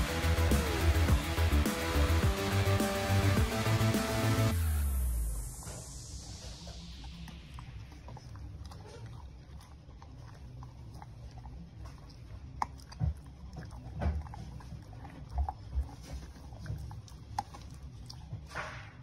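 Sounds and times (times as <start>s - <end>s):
dog crunching a biscuit: 6.6s - 18.5s.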